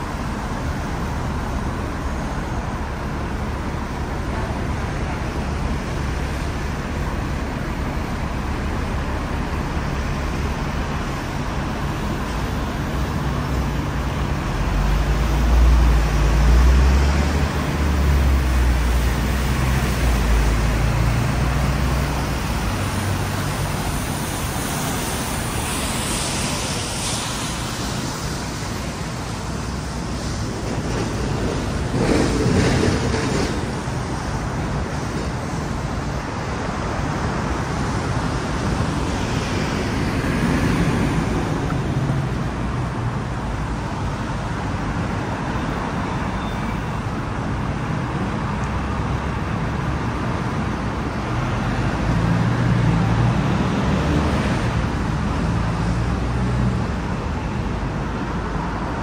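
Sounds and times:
passing cars: 0:00.0 - 0:59.0.

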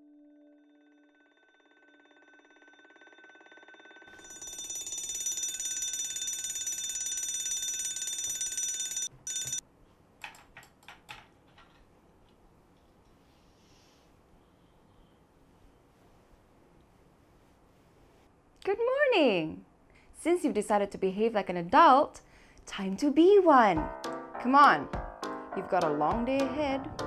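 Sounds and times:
alarm clock bell ringing: 0:00.7 - 0:09.6.

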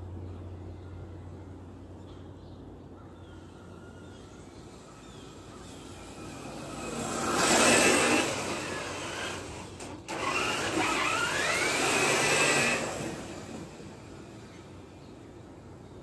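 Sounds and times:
electric motor and gears whining: 0:04.0 - 0:15.0.

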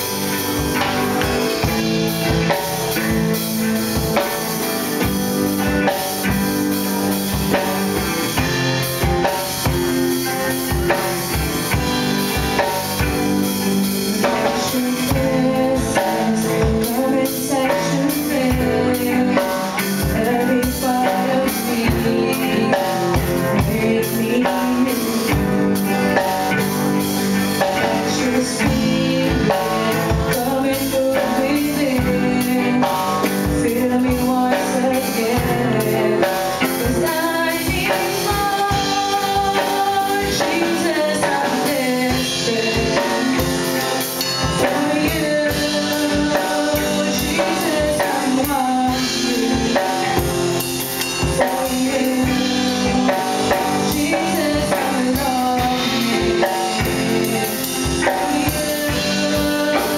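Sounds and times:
live band playing: 0:00.0 - 0:59.9
woman singing: 0:12.6 - 0:26.6, 0:27.4 - 0:59.9.

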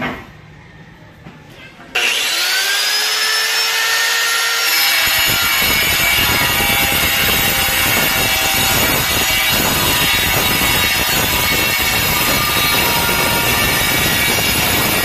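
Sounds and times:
angle grinder cutting tile: 0:01.9 - 0:15.0.

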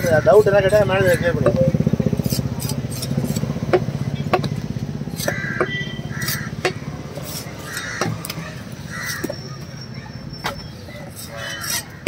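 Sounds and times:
engine pulsing steadily: 0:00.0 - 0:09.4.

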